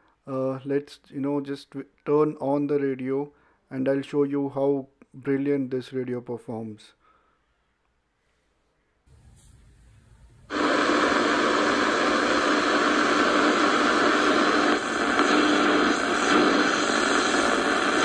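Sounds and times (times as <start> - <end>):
radio static hiss: 9.1 - 18.0.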